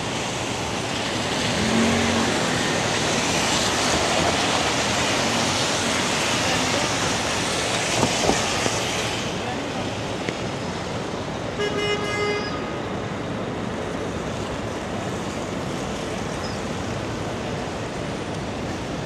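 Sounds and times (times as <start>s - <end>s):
street traffic noise: 0.0s - 19.0s
vehicle horn honk: 11.6s - 12.6s.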